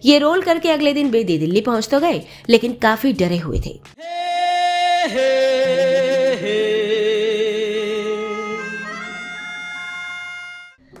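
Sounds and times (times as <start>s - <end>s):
man singing with vibrato: 4.0s - 10.5s
instrumental accompaniment: 7.4s - 11.0s.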